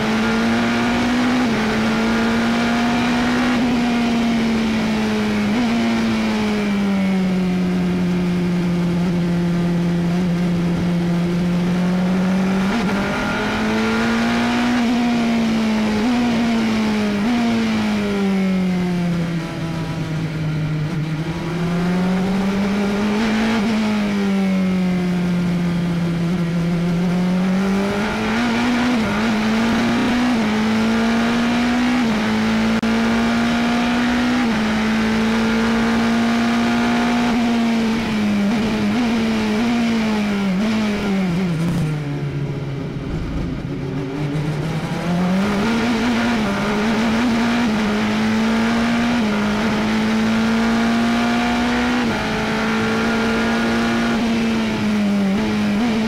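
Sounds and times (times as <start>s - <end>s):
race car engine shifting gears: 40.6s - 42.2s.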